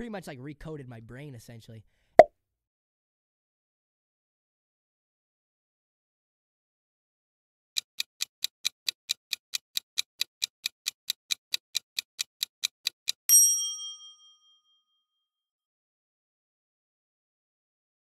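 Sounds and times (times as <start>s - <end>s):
clock ticking: 7.8s - 13.3s
bright ding: 13.3s - 14.7s.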